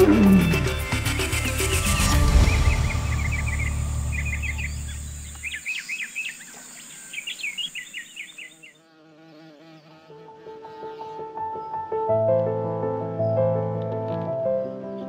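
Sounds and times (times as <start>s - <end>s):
low hum: 0.0s - 5.6s
bird chirping: 0.0s - 9.0s
insects droning: 0.0s - 11.7s
soft piano music: 10.1s - 15.0s.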